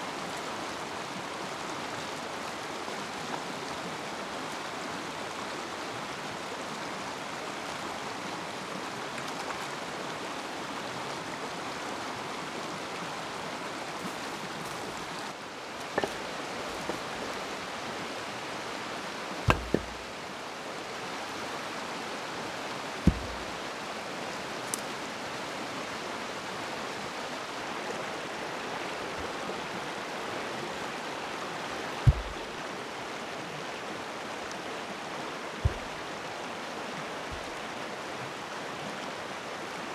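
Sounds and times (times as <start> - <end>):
stream rushing: 0.0 - 39.9
sharp short thumps: 16.0 - 17.1, 19.5 - 20.1, 23.0 - 23.7, 32.1 - 32.5, 35.6 - 36.0.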